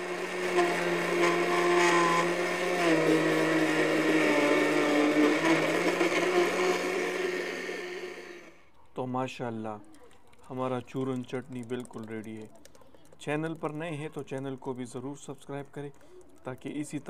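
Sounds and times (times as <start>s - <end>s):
blender motor running: 0.0s - 8.6s.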